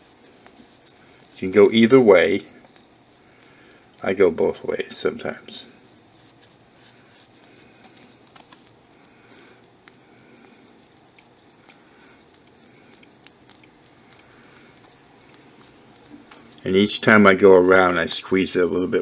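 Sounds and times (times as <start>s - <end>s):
fingers rubbing clay: 0.0s - 4.3s, 5.7s - 16.6s
low room hiss: 0.0s - 19.0s.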